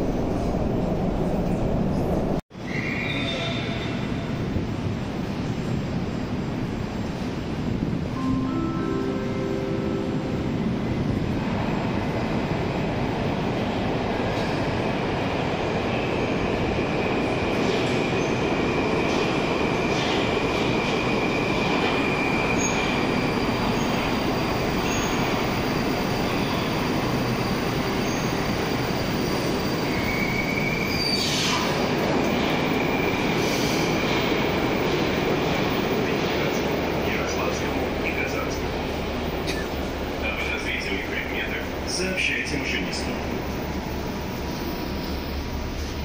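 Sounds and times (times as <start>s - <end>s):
train wheels rumbling on rail: 10.6s - 46.0s.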